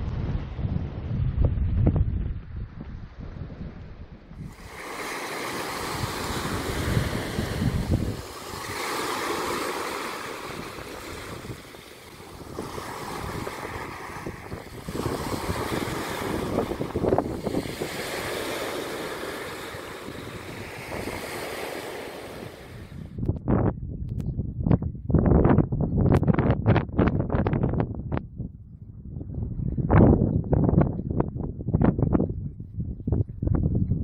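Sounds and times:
wind buffeting microphone: 0.0 - 34.0
small waves breaking on sand: 4.4 - 23.2.

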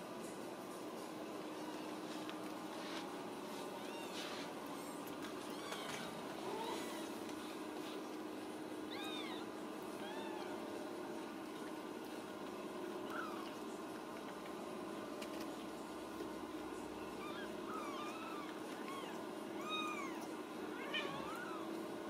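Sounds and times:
kittens mewing: 17.1 - 21.7.

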